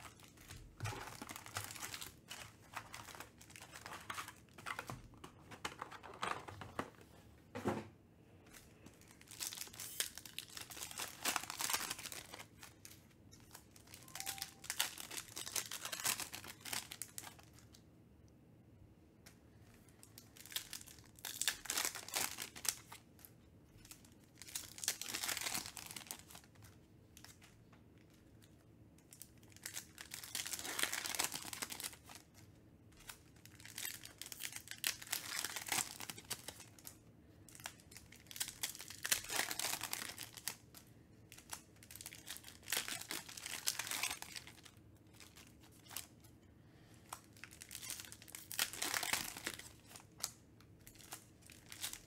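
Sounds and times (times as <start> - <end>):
foil wrappers crinkling and tearing: 0.0 - 5.0, 9.0 - 17.6, 20.1 - 23.0, 23.7 - 27.4, 29.1 - 32.3, 33.0 - 36.9, 37.5 - 46.2, 47.1 - 52.0.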